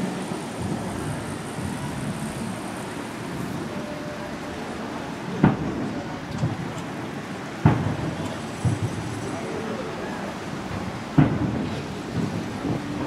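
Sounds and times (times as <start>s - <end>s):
street traffic hum: 0.0s - 13.0s
distant fireworks boom: 0.5s - 2.6s, 5.3s - 6.9s, 7.6s - 10.0s, 10.6s - 13.0s.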